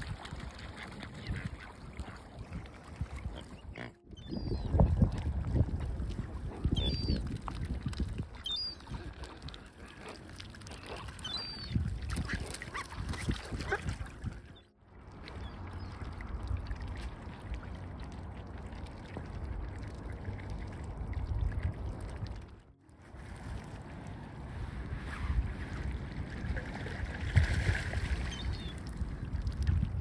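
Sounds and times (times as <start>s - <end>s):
wind rumble on microphone: 0.0s - 30.0s
birds calling: 6.8s - 7.2s, 8.4s - 9.0s, 10.7s - 13.0s.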